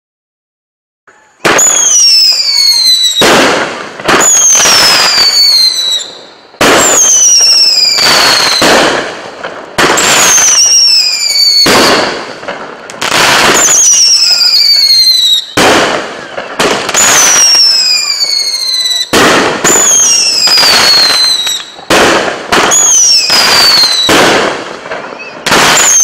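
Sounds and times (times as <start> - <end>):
firework whistle falling in pitch: 1.1 - 3.2
firework launch and burst: 1.4 - 26.0.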